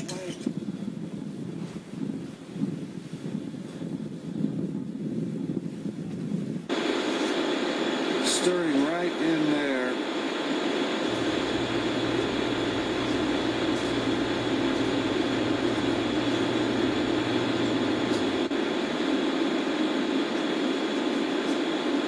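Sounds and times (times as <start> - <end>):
ocean surf roar: 6.7 - 22.0.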